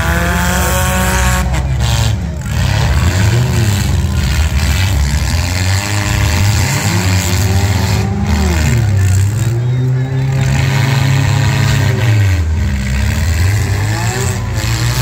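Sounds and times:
car engines revving: 0.0s - 15.0s.

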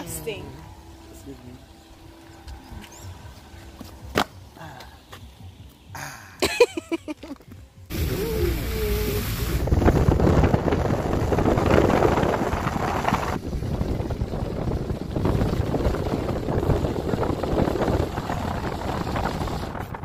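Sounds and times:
moving vehicle running noise: 0.0s - 6.3s, 7.4s - 20.0s
wind buffeting microphone: 7.9s - 20.0s.

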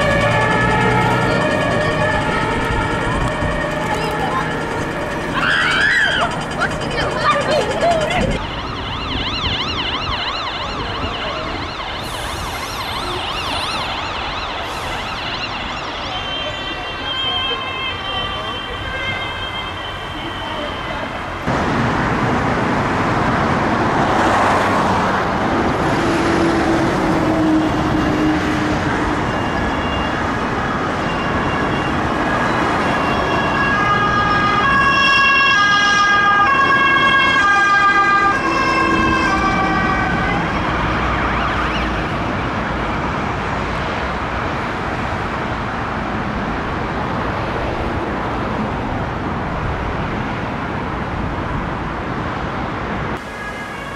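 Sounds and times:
ambulance siren two-tone: 0.0s - 21.1s, 27.3s - 43.1s, 53.2s - 53.9s
road traffic noise: 0.0s - 53.9s.

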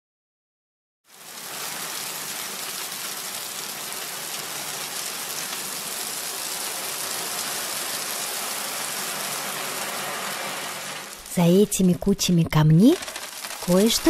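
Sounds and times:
small stones pouring: 6.8s - 11.4s, 12.7s - 14.0s.

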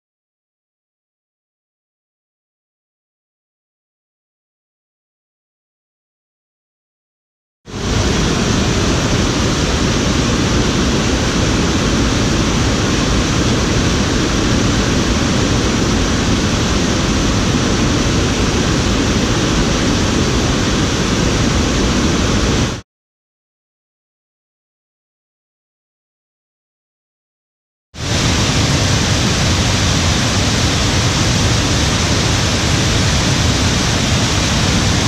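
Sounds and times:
water rushing over rocks: 7.7s - 22.8s, 28.0s - 35.0s.

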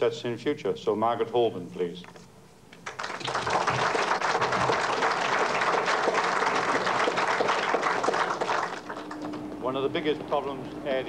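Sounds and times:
crowd applauding: 2.8s - 9.6s.

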